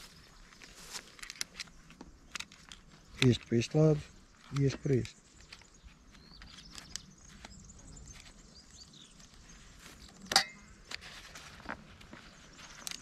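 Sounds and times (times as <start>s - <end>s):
plastic clicks and handling noise: 0.4s - 9.4s, 10.1s - 13.0s.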